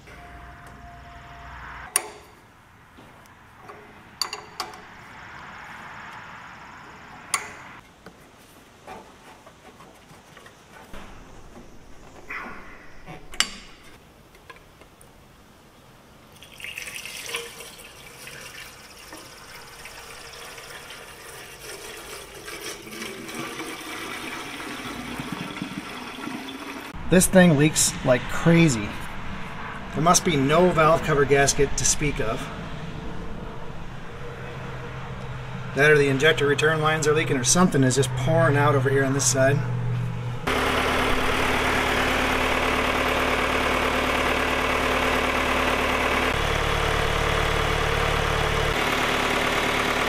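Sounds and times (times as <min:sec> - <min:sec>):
metal tools clinking: 0:03.6 - 0:04.9
liquid pouring into radiator: 0:16.3 - 0:26.9.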